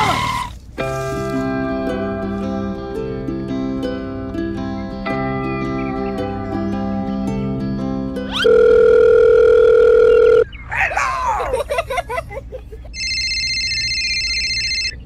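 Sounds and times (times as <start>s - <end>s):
plucked-string music: 0.8s - 8.5s
squeaky cartoon sound effects: 8.3s - 8.5s
high electronic phone tone: 8.3s - 10.5s, 13.0s - 15.0s
telephone dial-tone beep: 8.4s - 10.4s, 13.0s - 15.0s.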